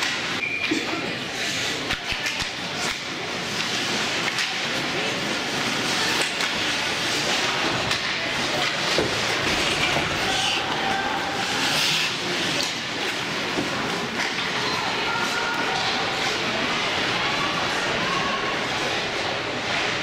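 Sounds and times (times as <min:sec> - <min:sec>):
hockey sticks and puck clacking: 0:01.4 - 0:17.1
skates scraping on ice: 0:03.2 - 0:14.5.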